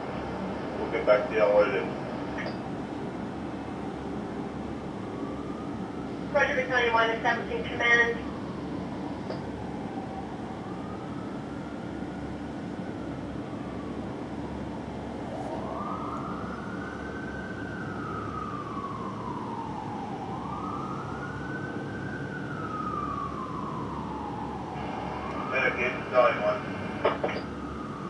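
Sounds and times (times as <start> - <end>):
fire siren wailing: 0.0 - 28.0
steady low rumble: 23.3 - 28.0.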